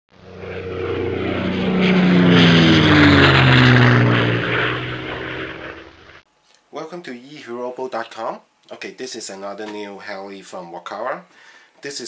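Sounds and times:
aircraft flying past: 0.1 - 6.2.

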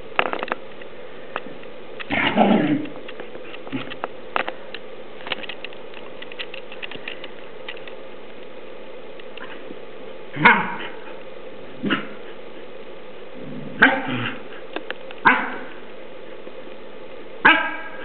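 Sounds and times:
dogs barking and yipping: 10.4 - 12.7, 13.7 - 15.9, 17.4 - 18.0.

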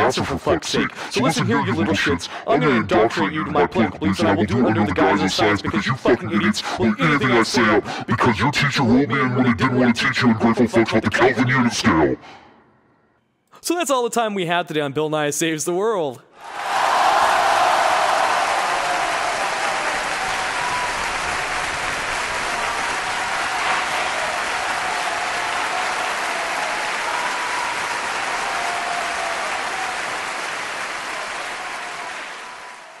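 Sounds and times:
audience applauding: 16.4 - 33.0.

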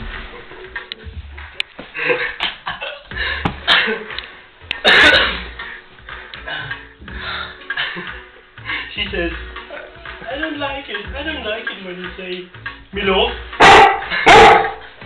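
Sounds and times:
large dog barking: 13.6 - 14.8.

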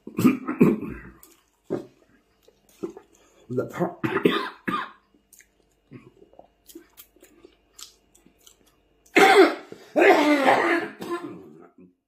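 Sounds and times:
man chewing wet mouth sounds: 0.9 - 3.4, 5.1 - 9.2
man speaking: 3.5 - 4.1.

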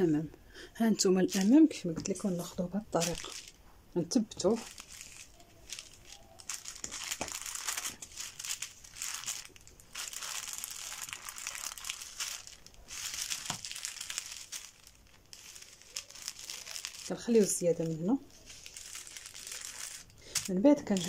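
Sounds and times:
paper and fabric rustling: 1.0 - 3.6, 4.2 - 21.0.

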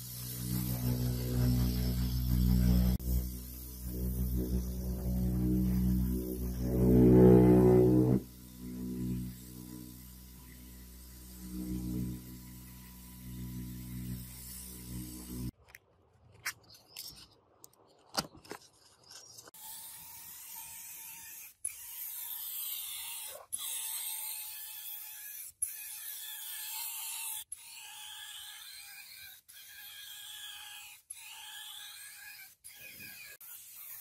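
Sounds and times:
air spray gun hissing: 0.0 - 15.5.

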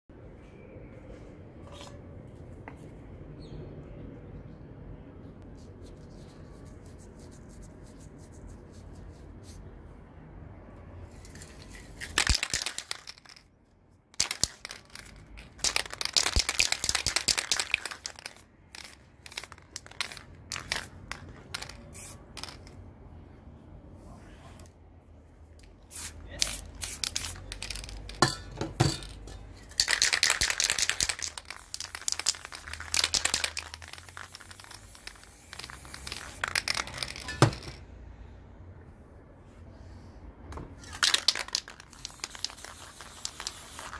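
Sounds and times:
aerosol spray can hissing: 42.0 - 43.9.

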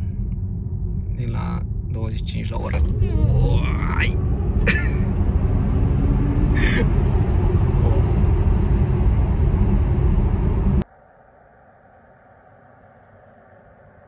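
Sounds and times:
tyre and road rumble: 0.0 - 10.8.

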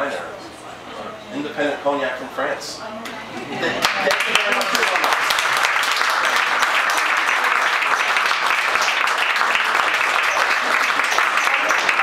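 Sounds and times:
audience clapping: 3.8 - 12.0.

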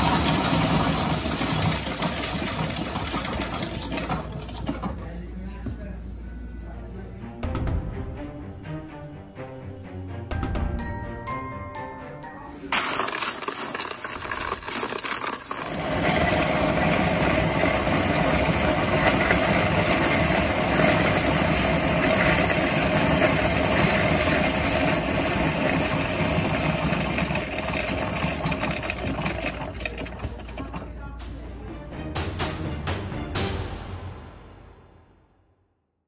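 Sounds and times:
coins clattering through machine: 0.0 - 4.9, 12.7 - 30.9
coins clinking: 0.0 - 4.9, 12.7 - 30.9.

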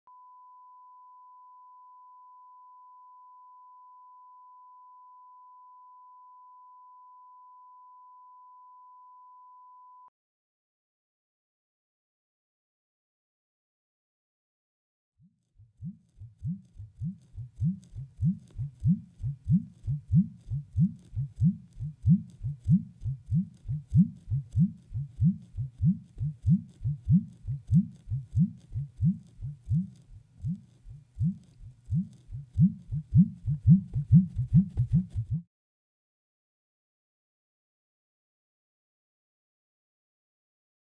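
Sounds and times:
deep low thumps with pitch swoop: 15.6 - 35.4.

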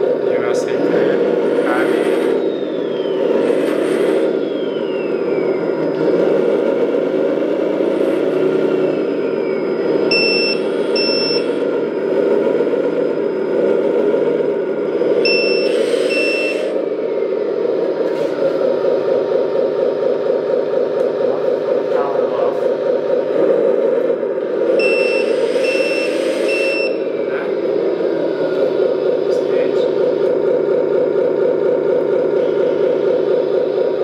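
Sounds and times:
simulated truck engine running: 0.0 - 34.0
short high electronic beeps: 10.1 - 11.5, 15.2 - 16.7, 24.8 - 27.1.

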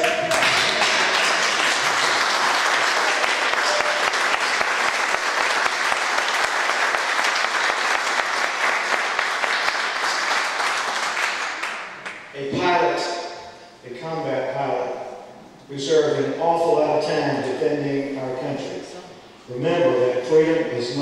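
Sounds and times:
audience applause: 0.0 - 12.1.

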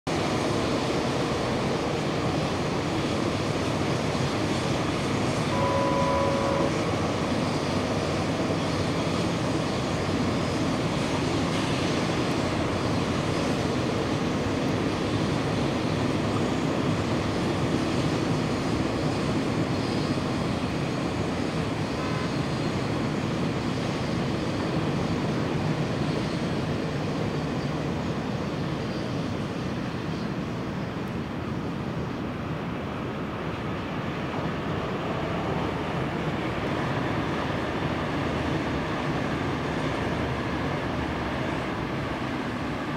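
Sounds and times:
train wheels rumbling on rails: 0.1 - 42.9
short steady tone: 5.5 - 6.9.

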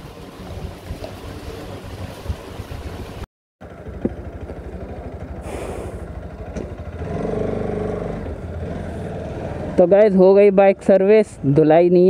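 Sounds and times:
motorcycle engine running: 0.4 - 11.1.

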